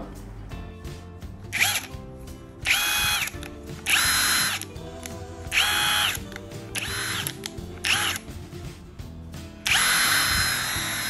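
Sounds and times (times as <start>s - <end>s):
impact wrench motor whine: 1.6s - 1.9s, 2.7s - 3.3s, 3.9s - 4.6s, 5.5s - 6.2s, 6.8s - 8.2s, 9.7s - 11.0s.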